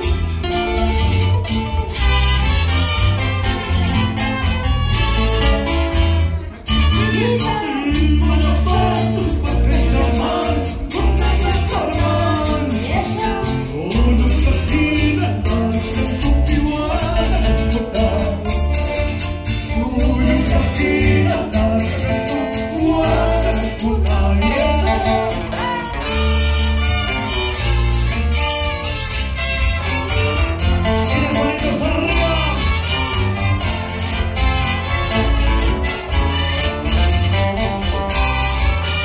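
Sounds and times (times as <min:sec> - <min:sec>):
latin folk dance music: 0:00.0 - 0:39.0
person singing: 0:07.1 - 0:19.0, 0:19.6 - 0:26.2, 0:31.0 - 0:33.1.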